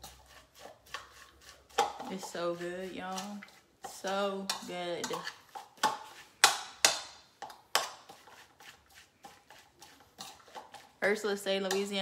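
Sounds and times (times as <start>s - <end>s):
utensil clinking against bowl: 1.7s - 6.0s, 11.6s - 12.0s.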